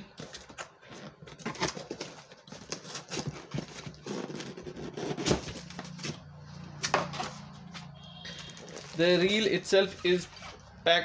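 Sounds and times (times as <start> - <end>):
cardboard flaps scraping: 0.4 - 6.3.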